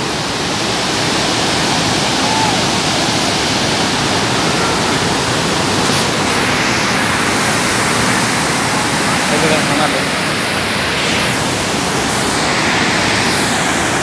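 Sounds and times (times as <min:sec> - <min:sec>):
waterfall rushing: 0:00.0 - 0:14.0.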